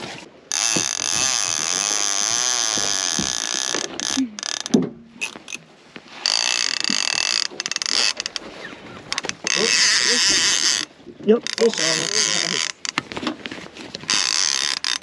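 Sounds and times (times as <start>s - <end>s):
fishing reel clicker ratcheting: 0.5s - 5.6s, 6.2s - 8.4s, 9.1s - 13.0s, 14.1s - 15.0s
knocks: 2.8s - 3.9s.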